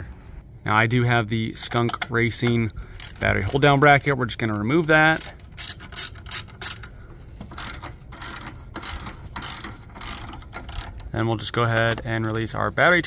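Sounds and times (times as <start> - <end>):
ratchet wrench clicking: 2.9 - 4.2, 5.1 - 6.9, 7.5 - 11.1, 12.2 - 12.5.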